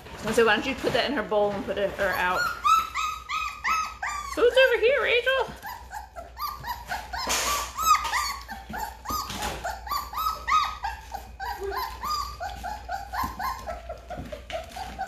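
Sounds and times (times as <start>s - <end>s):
puppies lapping milk: 0.0s - 15.0s
puppies squeaking and whimpering: 0.0s - 15.0s.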